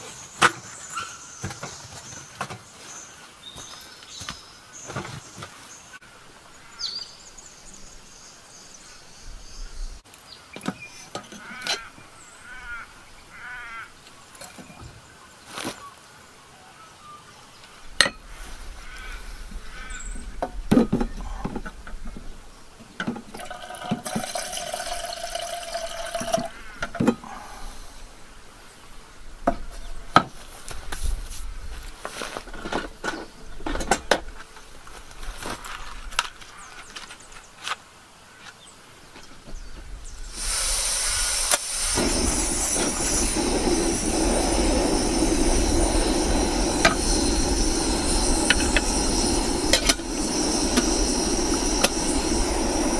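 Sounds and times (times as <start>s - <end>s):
gas stove hissing: 40.1s - 52.9s.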